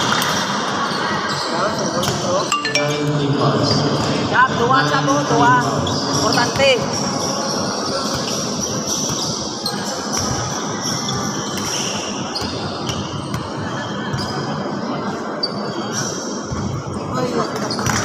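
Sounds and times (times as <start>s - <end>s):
echoing gym noise: 0.0s - 18.0s
shoes squeaking on court: 5.8s - 14.6s, 17.4s - 18.0s.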